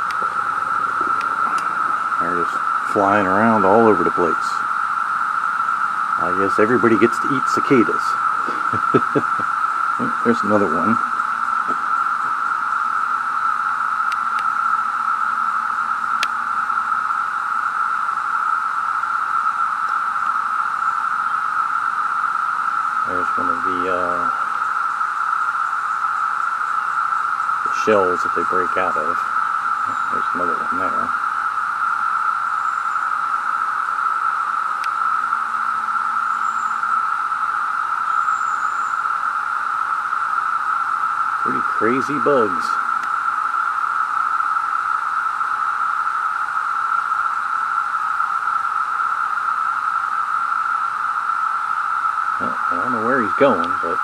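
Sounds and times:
cicadas droning: 0.0 - 54.0
faint clicks: 43.0 - 43.2.

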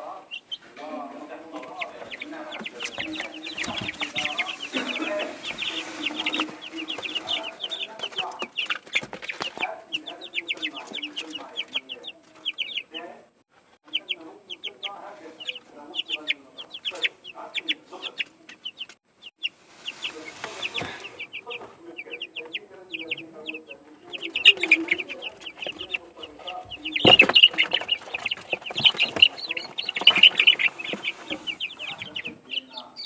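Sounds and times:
chicks peeping: 0.0 - 33.0
wood shavings rustling: 0.6 - 12.4, 19.6 - 21.8, 23.1 - 32.5.

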